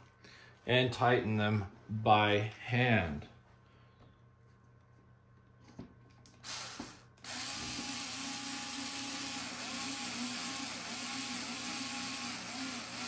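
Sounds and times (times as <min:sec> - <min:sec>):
electric screwdriver driving a screw: 0:06.4 - 0:13.0.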